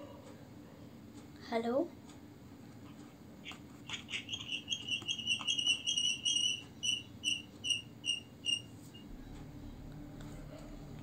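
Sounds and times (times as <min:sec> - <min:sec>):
electronic warbling trill: 0:08.5 - 0:11.0.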